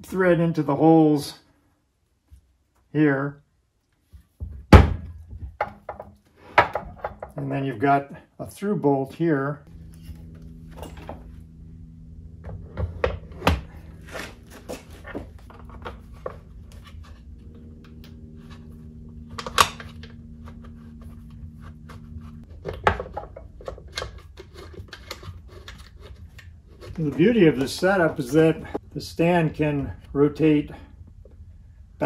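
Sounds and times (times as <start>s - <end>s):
low hum: 9.5s - 32.0s.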